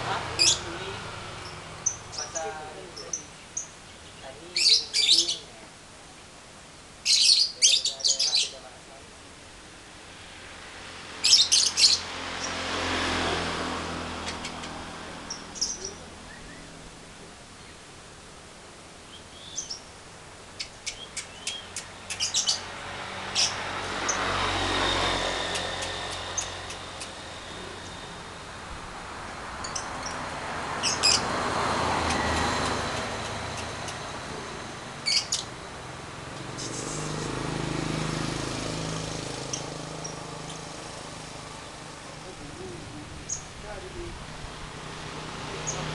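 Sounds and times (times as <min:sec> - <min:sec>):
low engine hum: 0:00.0 - 0:04.4, 0:10.1 - 0:45.9
lovebirds chirping: 0:00.2 - 0:06.4, 0:07.0 - 0:08.8, 0:11.1 - 0:13.2, 0:14.0 - 0:17.9, 0:19.0 - 0:28.4, 0:29.0 - 0:35.7, 0:36.4 - 0:44.2, 0:45.5 - 0:45.9
lovebird shrill chirps: 0:35.0 - 0:35.5.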